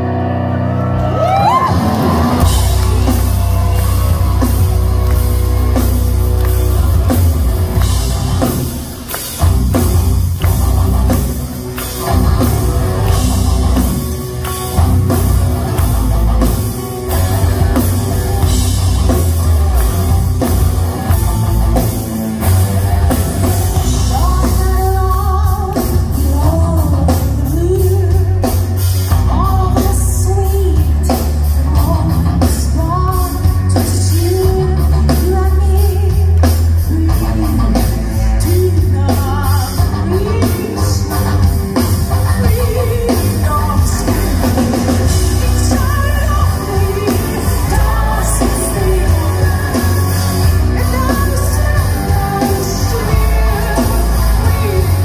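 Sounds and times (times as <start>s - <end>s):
keyboard playing: 0.0s - 30.6s
live rock band playing: 0.0s - 55.0s
woman singing: 23.8s - 55.0s.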